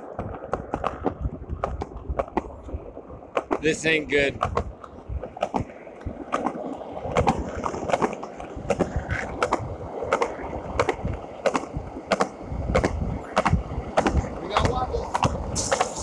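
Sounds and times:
skateboard wheels rolling on concrete: 0:00.0 - 0:16.0
skateboard wheels clacking over seams: 0:04.4 - 0:16.0
hiss of water: 0:15.4 - 0:16.0.

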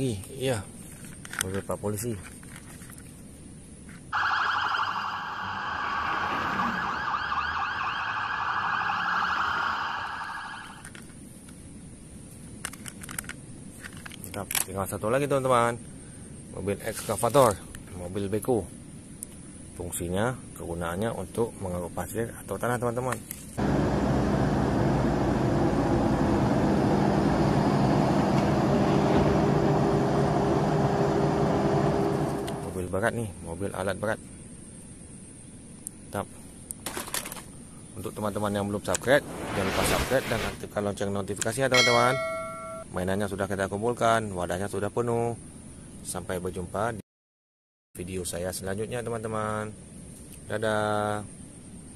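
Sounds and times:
police siren warbling: 0:04.2 - 0:10.8
excavator engine droning: 0:23.6 - 0:32.7
high steady tone: 0:41.8 - 0:43.0.

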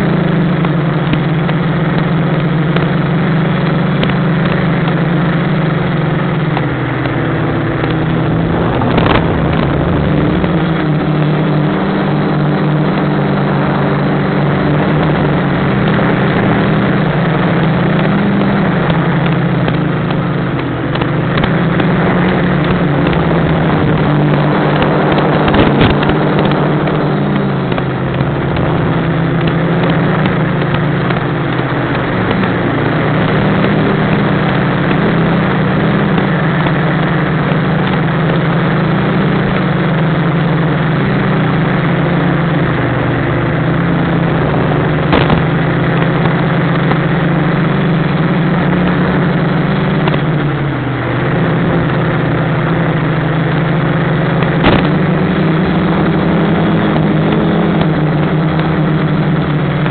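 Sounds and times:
drone motors buzzing: 0:04.0 - 0:13.0, 0:14.5 - 0:40.0, 0:40.7 - 0:59.9.

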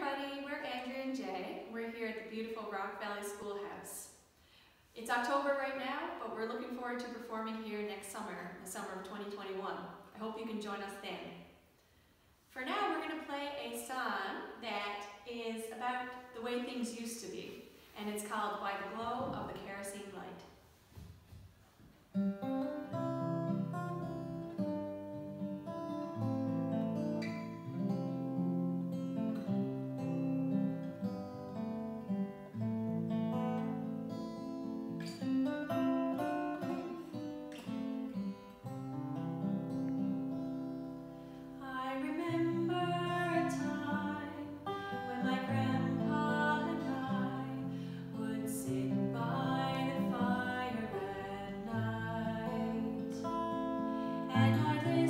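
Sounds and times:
acoustic guitar strummed: 0:22.1 - 0:55.0.

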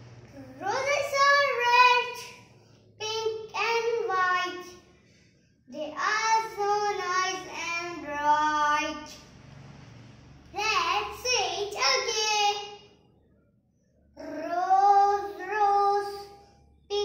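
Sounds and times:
young boy singing unaccompanied: 0:05.7 - 0:09.1.

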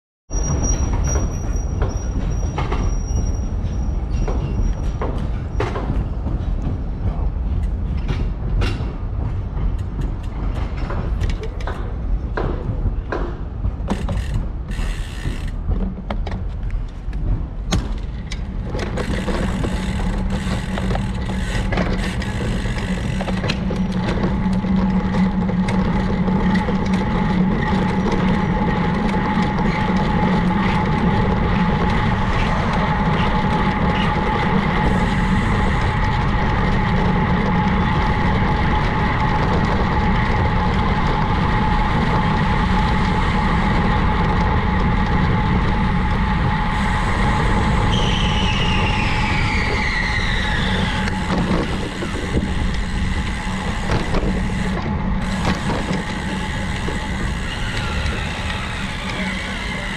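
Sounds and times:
road and traffic noise: 0:51.0 - 0:59.9.

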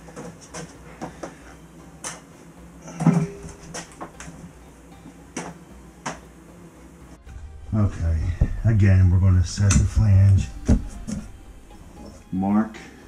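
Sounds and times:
low thud: 0:07.3 - 0:11.4.

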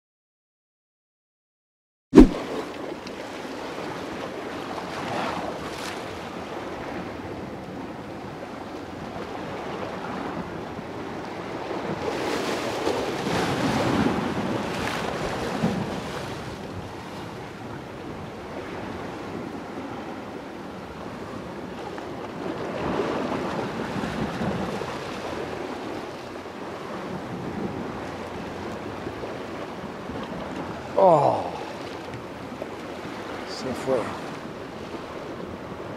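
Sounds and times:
sea waves washing against rocks: 0:02.2 - 0:07.1, 0:09.4 - 0:20.2, 0:21.6 - 0:35.9
wind on the microphone: 0:06.6 - 0:33.4.

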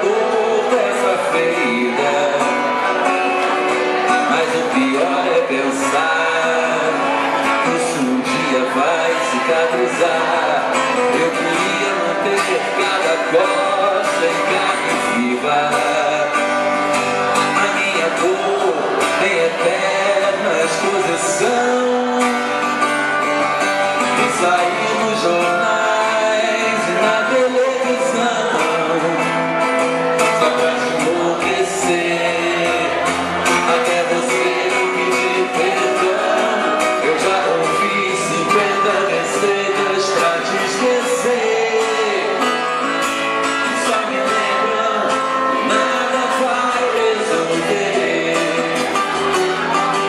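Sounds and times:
guitar: 0:00.0 - 0:50.0
man singing: 0:00.0 - 0:50.0.

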